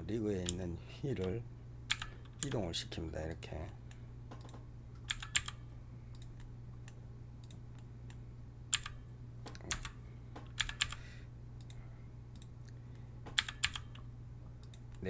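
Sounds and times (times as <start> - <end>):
steady low hum: 0.0 - 15.0
keyboard keystrokes: 1.2 - 2.6, 4.3 - 5.6, 8.7 - 11.0, 13.3 - 14.0.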